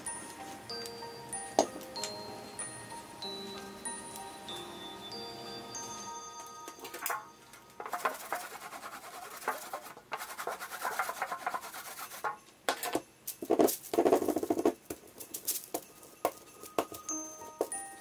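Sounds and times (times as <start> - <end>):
roller rolling through sticky ink: 7.8 - 12.4.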